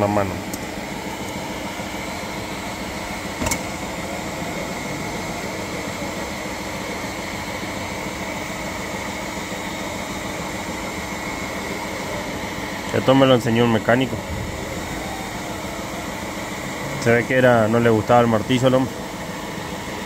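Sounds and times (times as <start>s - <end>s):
heat gun blowing with whine: 11.0s - 19.3s.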